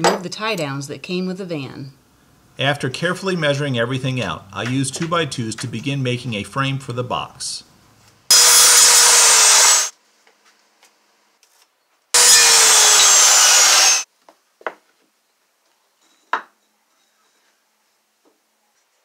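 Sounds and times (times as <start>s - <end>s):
circular saw cutting wood: 8.3s - 9.9s, 12.2s - 14.1s.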